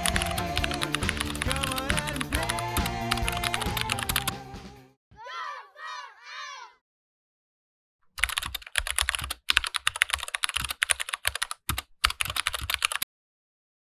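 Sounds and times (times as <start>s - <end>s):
fast keyboard typing: 0.0s - 4.4s, 8.2s - 13.1s.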